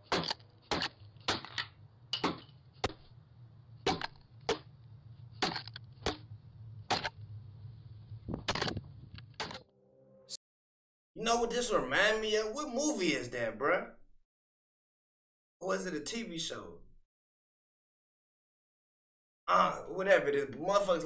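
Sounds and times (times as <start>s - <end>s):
low steady hum: 0.0s - 10.4s.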